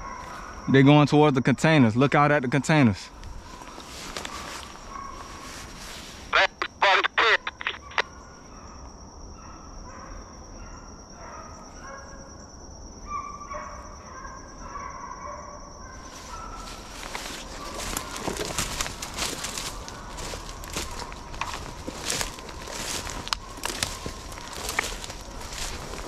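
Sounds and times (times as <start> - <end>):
rustling of dry leaves and brush: 3.1 - 6.3, 16.0 - 26.0
hounds baying: 13.0 - 26.0.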